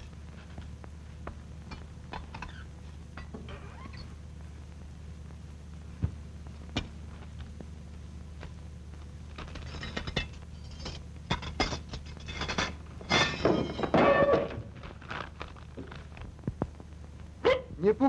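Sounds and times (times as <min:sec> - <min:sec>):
cloth and paper rustling: 0:14.8 - 0:16.3.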